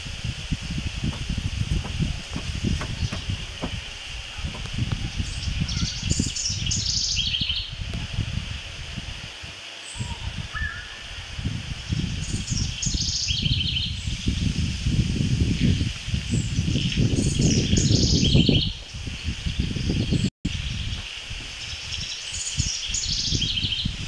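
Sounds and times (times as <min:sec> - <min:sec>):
songbirds chirping trills: 0:00.0 - 0:08.0
wind rumbling on microphone: 0:00.0 - 0:24.0.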